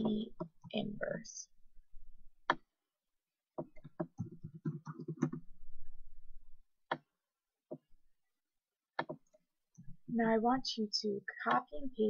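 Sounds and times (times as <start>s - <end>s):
computer keyboard typing: 3.6s - 5.4s.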